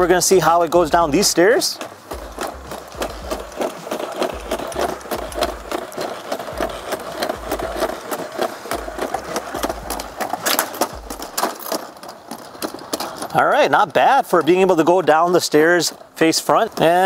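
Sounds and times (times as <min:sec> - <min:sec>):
leg actuators whirring: 0:00.0 - 0:17.0.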